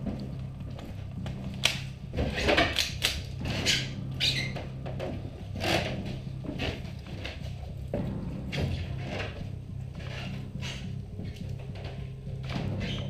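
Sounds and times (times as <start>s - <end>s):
footsteps crunching over rubble: 0.0s - 2.4s
low steady hum: 0.0s - 13.0s.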